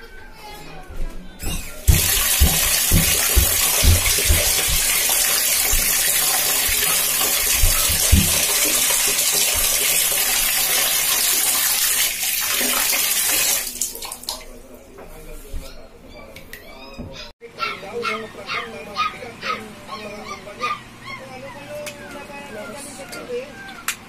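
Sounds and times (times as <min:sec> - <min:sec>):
dull thumps: 0:01.4 - 0:08.7
tap water rushing: 0:01.5 - 0:14.6.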